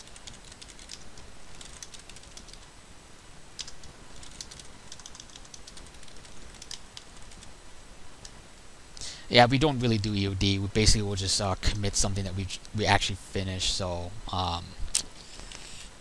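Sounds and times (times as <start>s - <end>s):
computer keyboard typing: 0.0s - 2.7s, 3.6s - 7.5s.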